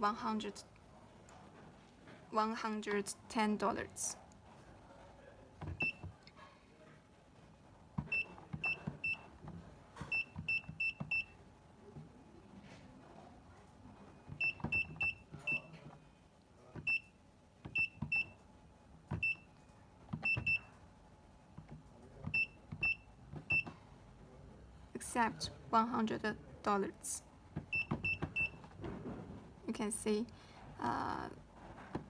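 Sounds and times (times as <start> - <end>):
keypad beeps with soft clicks: 8.0 - 9.3, 10.1 - 11.4, 14.4 - 15.7, 17.7 - 18.4, 19.2 - 20.7, 22.3 - 23.7, 27.7 - 28.6.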